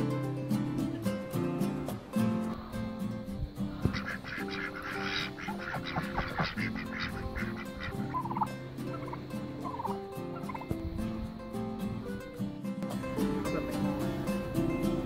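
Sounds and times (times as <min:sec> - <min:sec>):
acoustic guitar music: 0:00.0 - 0:15.0
poultry calling: 0:02.5 - 0:11.3.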